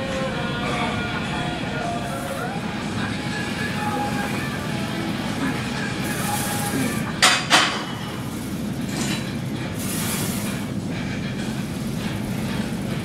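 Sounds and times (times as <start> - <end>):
weight plates clanking: 5.3 - 13.0.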